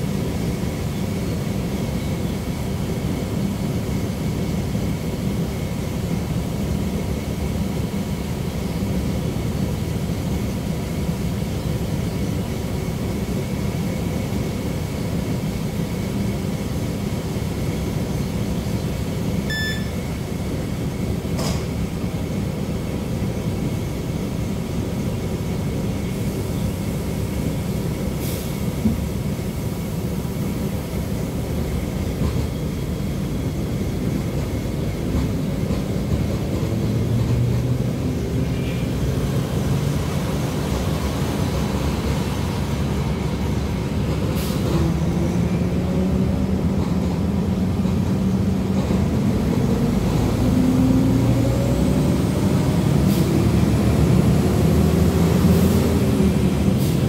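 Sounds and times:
railcar low rumble: 0.0s - 57.0s
short electronic beep: 19.5s - 20.0s.

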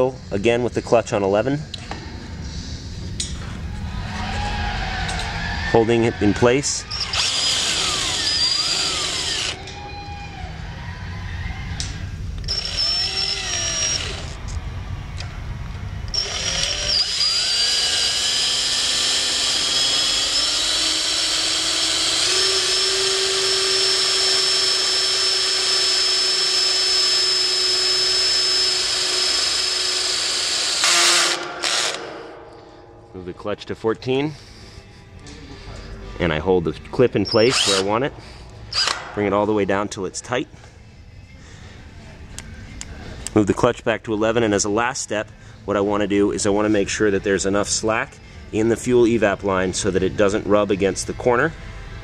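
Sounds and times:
cordless drill motor whining: 6.9s - 9.7s, 12.4s - 14.4s, 16.1s - 31.3s, 37.3s - 37.9s.

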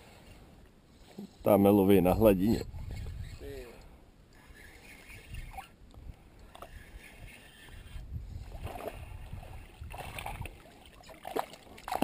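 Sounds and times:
fish splashing and thrashing: 8.5s - 12.0s.

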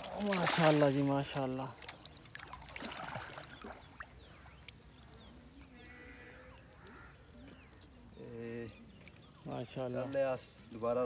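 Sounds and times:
water splash: 0.0s - 4.8s.

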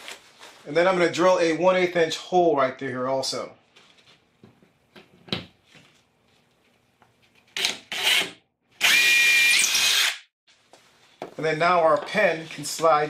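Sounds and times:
cordless drill boring into board: 7.6s - 10.2s.

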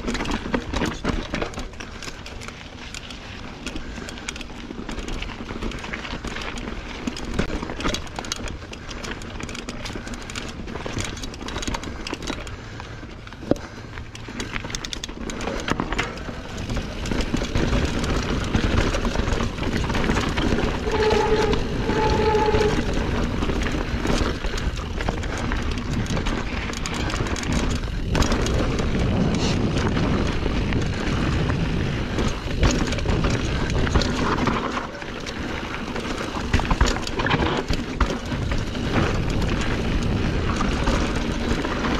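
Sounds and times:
bike rattling and clacking: 0.0s - 41.9s
tyres crunching over loose rocks: 0.0s - 41.9s
rushing wind noise: 16.4s - 37.6s
short squeaks: 20.6s - 23.3s.

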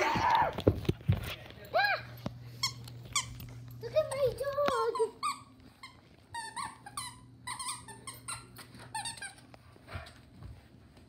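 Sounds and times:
squeaky toy squeaking: 4.9s - 9.4s.

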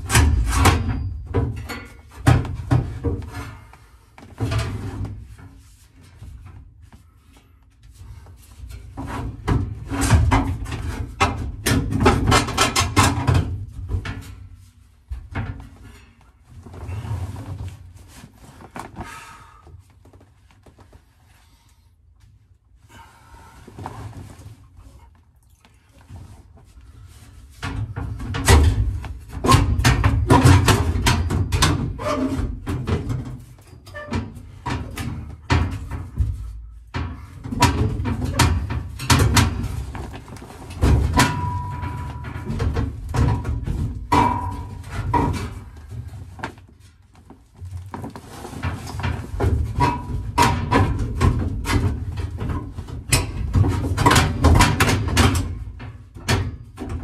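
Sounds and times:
metal clanks and scrapes: 0.0s - 6.0s, 26.9s - 46.4s, 48.0s - 57.0s.

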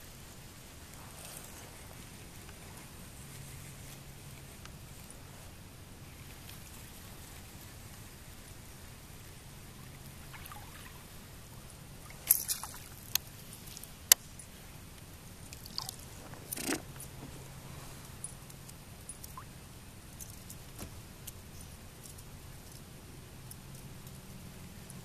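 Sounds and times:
water sloshing: 9.9s - 11.1s, 12.0s - 13.9s, 15.5s - 16.8s.

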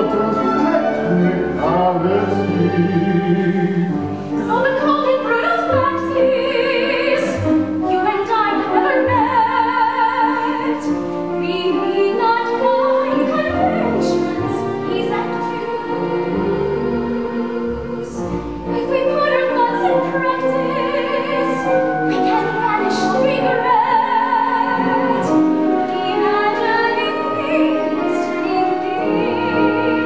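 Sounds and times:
person singing with vibrato: 0.0s - 7.4s
instrumental accompaniment: 0.0s - 30.0s.

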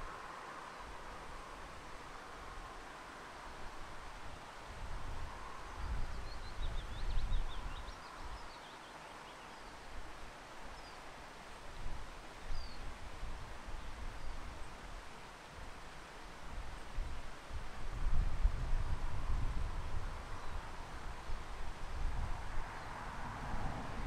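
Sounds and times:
wind buffeting microphone: 3.7s - 8.5s, 16.4s - 24.0s
wind gusting: 16.4s - 24.0s.

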